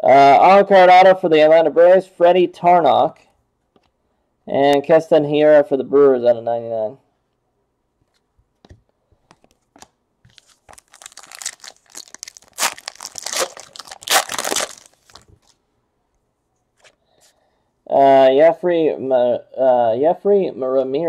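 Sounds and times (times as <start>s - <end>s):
foil wrapper tearing and crinkling: 9.8s - 15.6s.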